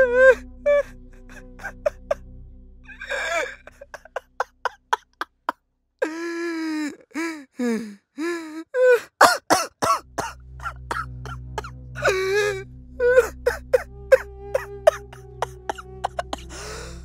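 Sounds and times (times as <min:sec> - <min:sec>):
low music drone: 0:00.0 - 0:05.0, 0:09.8 - 0:17.0
man sobbing and gasping: 0:02.9 - 0:05.3, 0:06.0 - 0:17.0.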